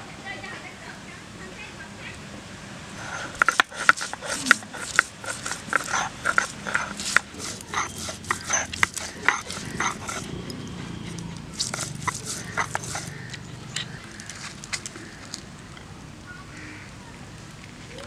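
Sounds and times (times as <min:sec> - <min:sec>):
stone grinding on stone: 0:03.0 - 0:14.0.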